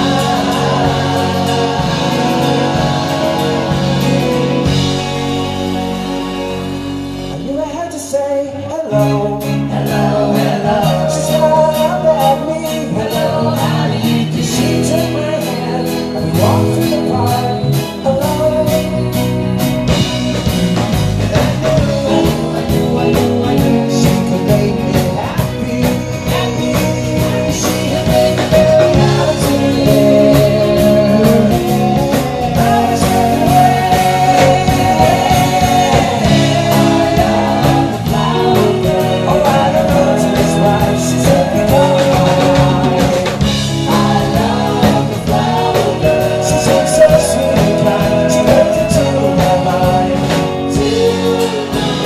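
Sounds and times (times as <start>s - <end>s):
drum strokes: 0.0s - 6.4s, 19.6s - 52.0s
male lead vocal: 0.0s - 52.0s
pop-rock band playing: 0.0s - 52.0s.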